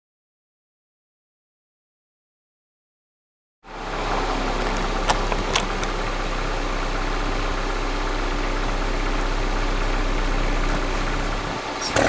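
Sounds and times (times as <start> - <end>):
car exhaust idling: 3.7 - 12.0.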